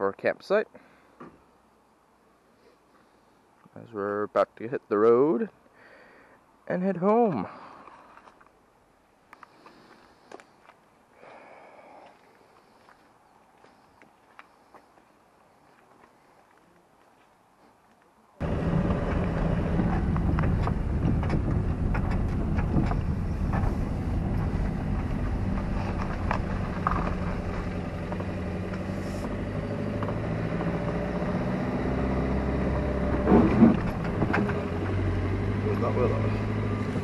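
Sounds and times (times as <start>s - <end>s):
road noise: 0.0s - 37.0s
car engine running: 18.4s - 37.0s.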